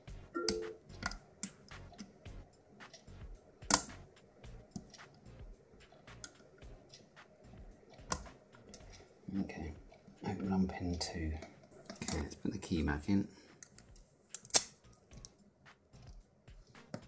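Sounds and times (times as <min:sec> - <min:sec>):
lock pick metal clicks: 0:13.6 - 0:15.3.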